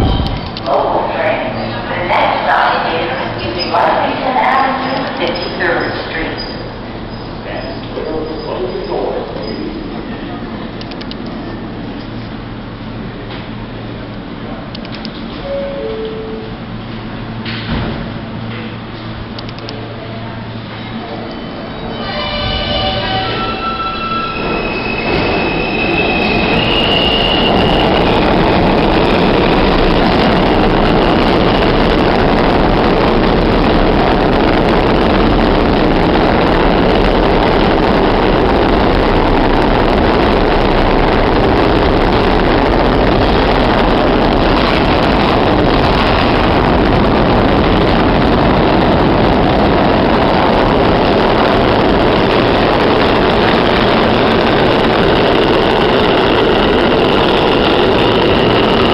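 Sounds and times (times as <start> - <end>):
subway train wheels rumbling: 0.0 - 58.9
high-pitched whine: 19.4 - 58.9.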